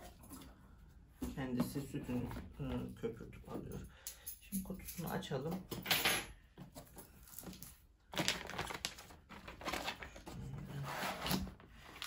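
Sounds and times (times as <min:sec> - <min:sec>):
plastic sheet crinkling: 0:07.2 - 0:12.0
cardboard scraping: 0:09.5 - 0:12.0.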